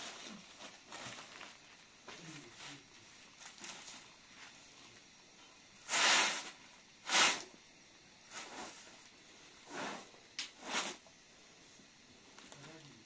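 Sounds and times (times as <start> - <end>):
hand broom sweeping a rug: 5.8 - 7.5, 8.2 - 11.1.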